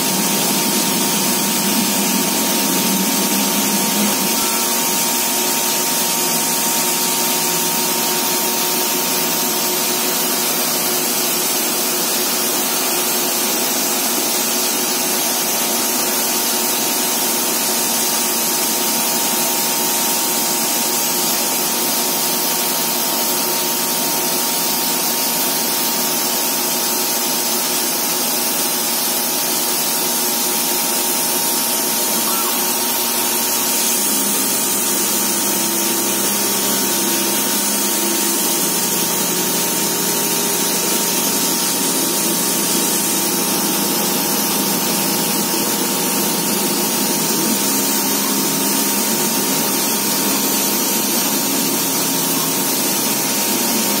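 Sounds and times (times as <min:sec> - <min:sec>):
low hum: 0:00.0 - 0:05.6
cutting hiss: 0:31.5 - 0:54.0.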